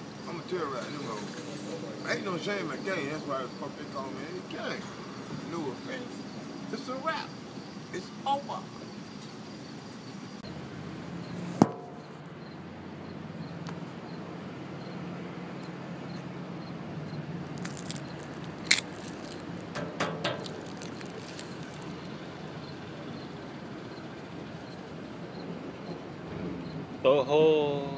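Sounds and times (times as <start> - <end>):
low outdoor hum: 0.0 - 27.9
candy bag crackling: 17.5 - 19.7, 20.3 - 22.1.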